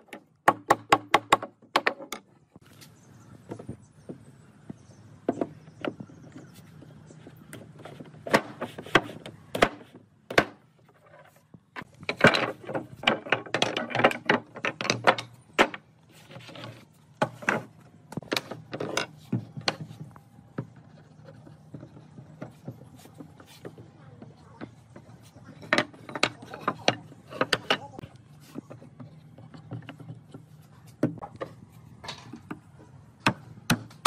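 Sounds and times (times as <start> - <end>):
wooden boards knocking: 0.0 - 2.3.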